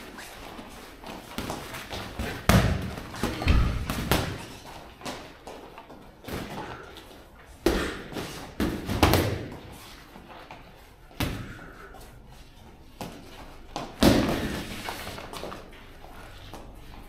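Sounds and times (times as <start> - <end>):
boxing gloves punching: 1.1 - 5.2, 7.6 - 9.6, 13.0 - 15.5.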